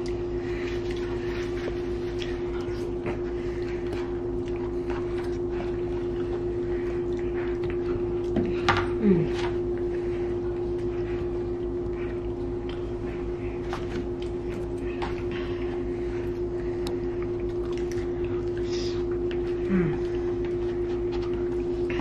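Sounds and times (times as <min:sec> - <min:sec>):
steady hum: 0:00.0 - 0:22.0.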